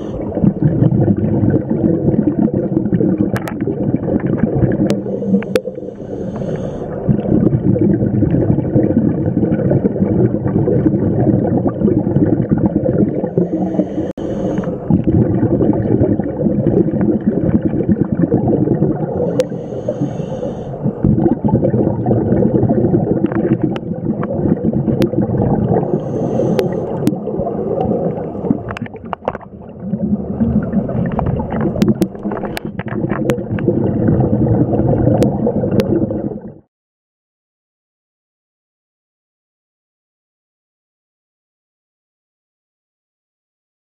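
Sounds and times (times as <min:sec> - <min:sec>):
exhaled bubbles gurgling underwater: 0:00.0 - 0:36.7
hissing regulator inhale: 0:05.0 - 0:07.1, 0:13.3 - 0:14.9, 0:19.1 - 0:21.0, 0:25.8 - 0:27.1.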